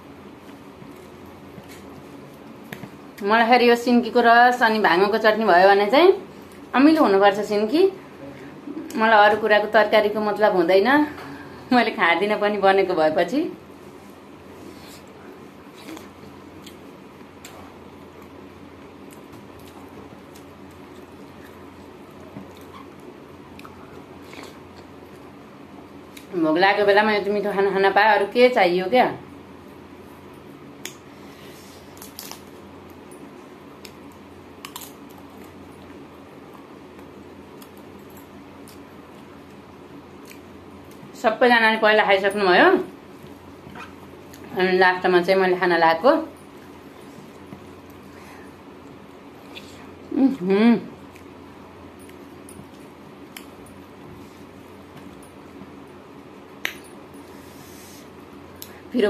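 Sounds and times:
steady low hum: 0.0 - 59.0
chewing: 19.0 - 25.2.

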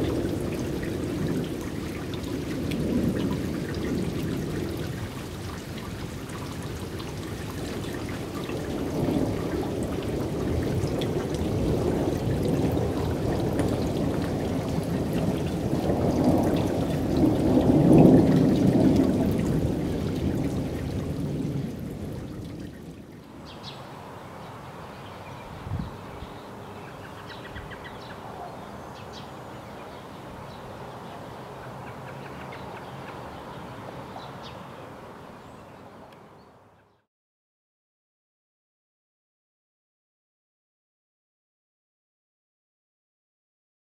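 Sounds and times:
thunder rumble: 0.0 - 23.8
heavy rain: 0.0 - 36.1.

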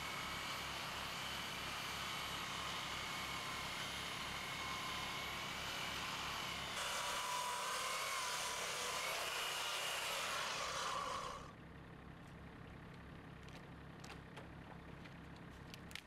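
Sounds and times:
chainsaw cutting log: 0.0 - 11.5.

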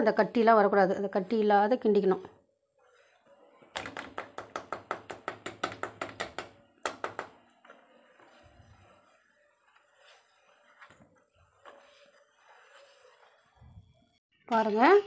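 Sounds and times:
batter sloshing: 6.7 - 14.2.

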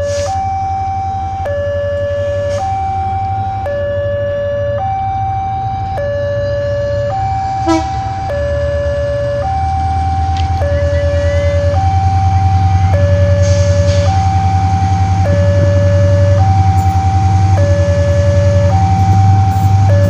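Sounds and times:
diesel locomotive engine rumbling: 0.0 - 20.0
two-tone siren: 0.0 - 20.0.

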